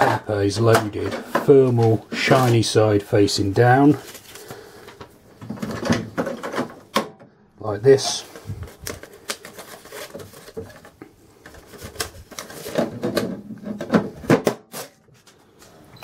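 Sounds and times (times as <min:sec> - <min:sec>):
paper rustling and crinkling: 0:03.9 - 0:05.0, 0:07.9 - 0:13.9.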